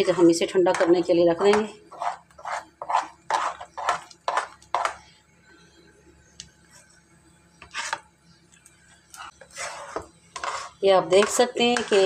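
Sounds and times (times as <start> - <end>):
spatula scraping dough in pan: 0.0 - 5.0, 7.6 - 8.1, 9.2 - 12.0.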